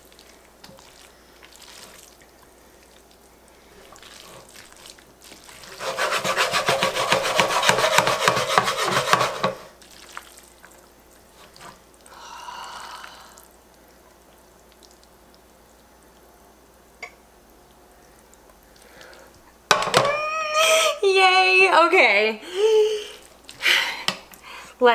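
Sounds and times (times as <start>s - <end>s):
tongs scraping noodles in a pan: 5.6s - 9.8s.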